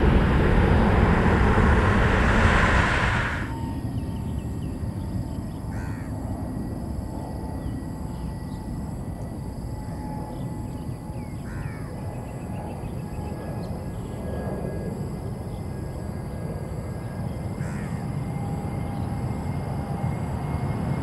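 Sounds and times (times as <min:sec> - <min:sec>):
steady low rumble: 0:00.0 - 0:04.4
crows cawing: 0:05.7 - 0:06.1, 0:11.5 - 0:11.9, 0:17.6 - 0:18.0.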